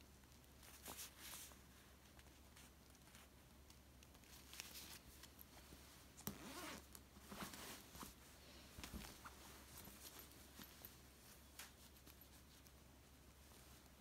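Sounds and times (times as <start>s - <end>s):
soft clicks and scrapes: 0.2s - 14.0s
pillow cover rustling: 4.2s - 12.8s.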